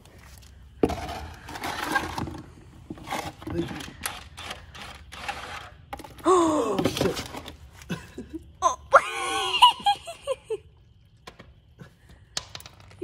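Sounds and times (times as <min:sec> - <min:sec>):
man laughing: 0:07.8 - 0:10.7.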